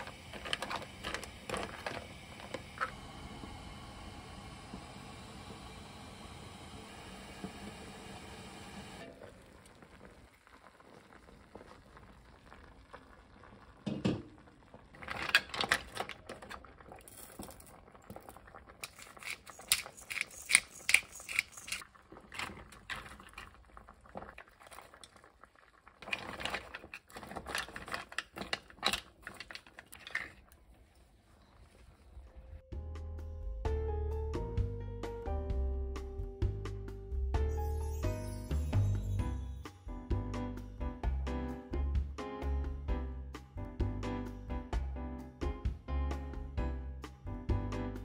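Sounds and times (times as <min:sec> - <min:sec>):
broth bubbling: 0:09.1 - 0:15.0, 0:21.8 - 0:27.3
shells clattering against pan: 0:18.8 - 0:21.8.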